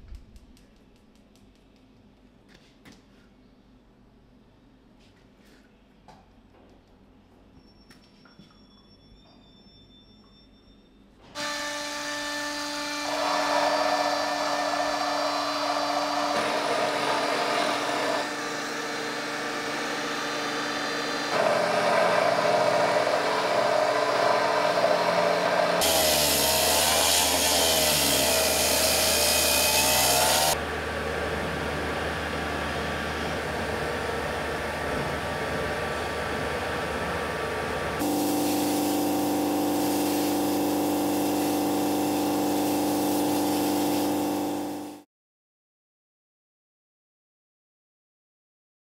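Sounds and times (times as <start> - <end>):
power tools grinding stone: 12.8 - 30.6, 38.0 - 45.0.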